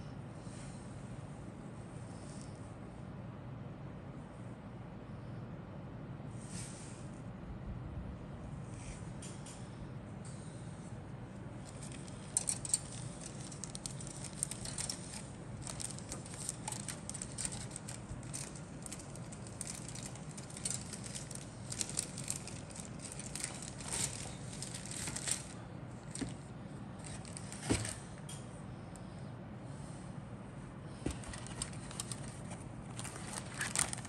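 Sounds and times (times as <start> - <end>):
steady low hum: 0.0 - 34.0
plastic parts clicking and crinkling: 11.6 - 26.4, 27.0 - 28.4, 31.0 - 34.0.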